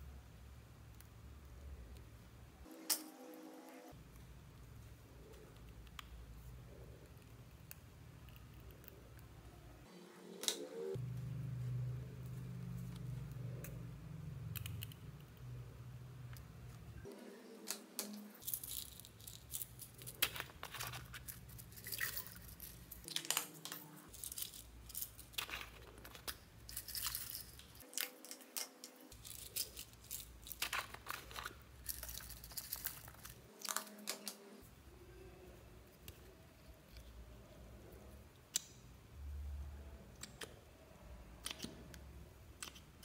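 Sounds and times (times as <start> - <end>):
sequins clicking and rattling: 17.7 - 34.2.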